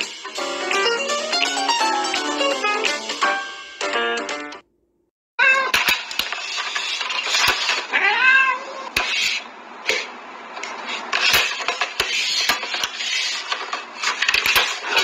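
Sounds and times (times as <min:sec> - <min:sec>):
cat meowing: 0:05.4 - 0:05.8, 0:07.9 - 0:08.9.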